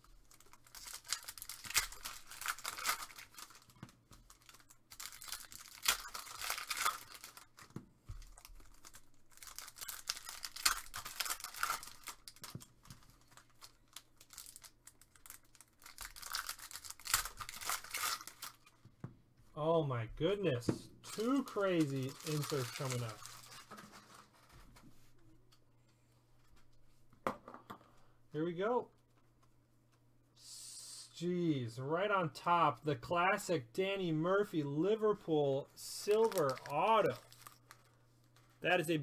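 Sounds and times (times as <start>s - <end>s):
card wrappers crinkling and tearing: 0.0s - 18.8s, 21.1s - 24.6s, 35.8s - 38.9s.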